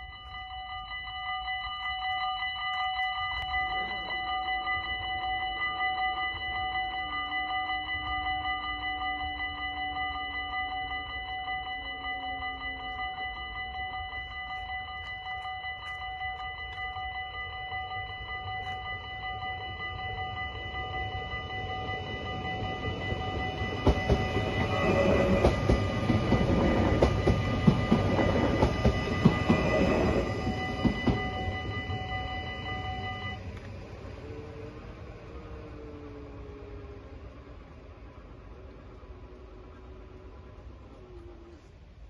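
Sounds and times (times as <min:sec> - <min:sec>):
level crossing bells ringing: 0:00.0 - 0:37.9
train wheels clicking over rails: 0:22.3 - 0:32.2.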